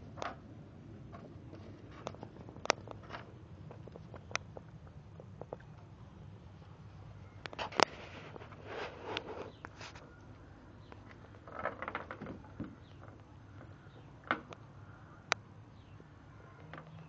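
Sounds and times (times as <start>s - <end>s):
small clicks and scrapes: 1.1s - 5.8s, 7.4s - 10.2s.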